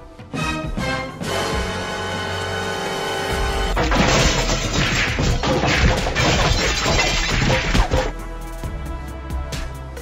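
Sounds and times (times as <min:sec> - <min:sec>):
background music: 0:00.0 - 0:10.0
cartoon crashing and smacking hits: 0:03.8 - 0:08.1.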